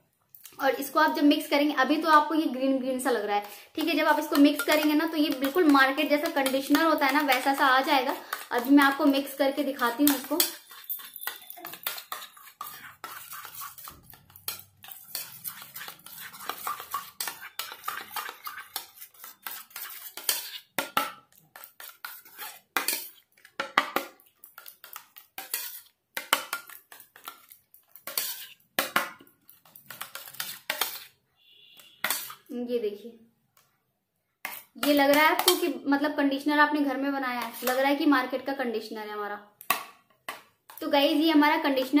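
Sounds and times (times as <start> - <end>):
metal spoon scraping steel bowl: 3.2 - 23.3, 24.4 - 32.5, 34.4 - 35.8, 37.4 - 37.8.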